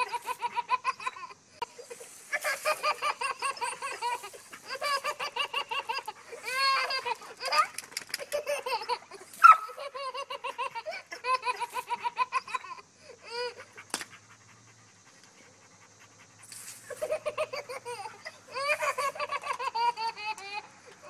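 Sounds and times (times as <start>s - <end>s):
baby giggling: 0.0s - 13.6s, 16.9s - 20.7s.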